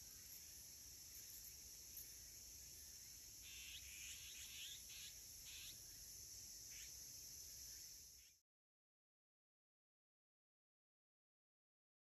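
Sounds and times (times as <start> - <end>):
high-pitched insect chorus: 0.0 - 8.4
harsh magpie calls: 3.4 - 5.8.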